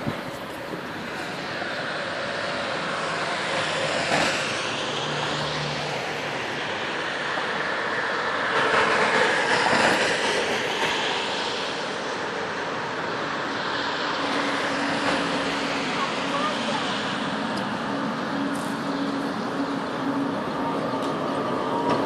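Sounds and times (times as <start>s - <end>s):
tram wheel and rail noise: 0.0s - 22.0s.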